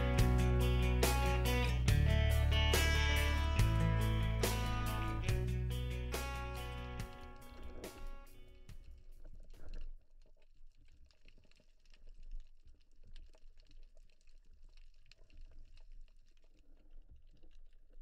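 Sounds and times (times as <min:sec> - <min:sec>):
low rumble of moving water: 0:00.0 - 0:18.0
small crackling clicks underwater: 0:05.5 - 0:18.0.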